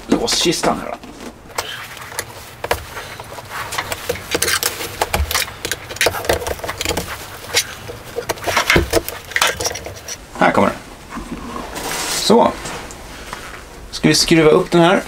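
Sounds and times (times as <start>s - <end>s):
screwdriver prying at metal lock: 3.9s - 10.2s.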